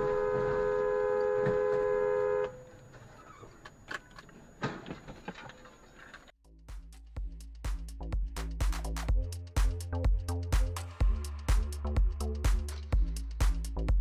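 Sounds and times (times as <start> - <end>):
two-tone car horn blast: 0.0 - 2.8
road noise: 0.0 - 6.3.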